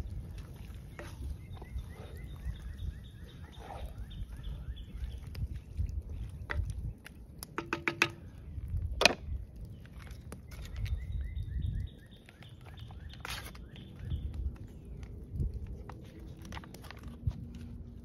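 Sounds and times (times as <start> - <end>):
wooden spoon stirring in pot: 0.0 - 8.5.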